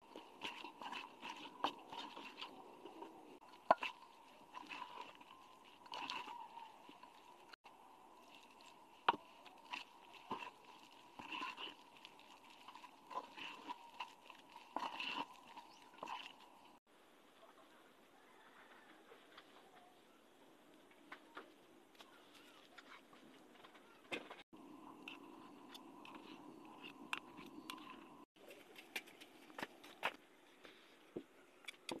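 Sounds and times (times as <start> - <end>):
utensil scraping metal bowl: 0.0 - 7.6, 8.3 - 16.8.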